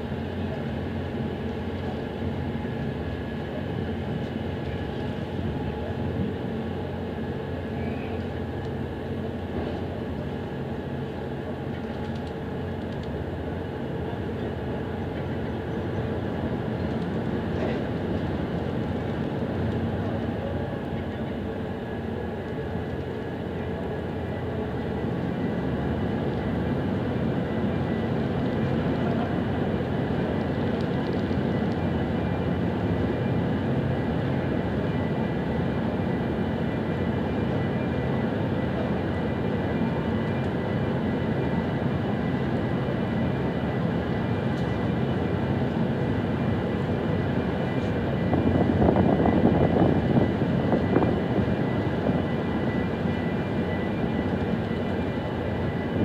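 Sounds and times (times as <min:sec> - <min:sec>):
machinery drone: 0:13.3 - 0:56.0.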